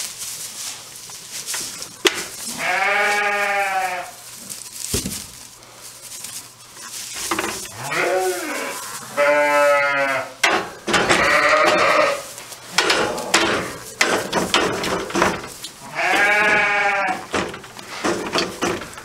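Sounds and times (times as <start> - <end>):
rustles and knocks: 0.0 - 9.4, 10.4 - 19.0
sheep bleating: 2.5 - 4.2, 7.7 - 10.4, 11.1 - 12.3, 15.8 - 17.3.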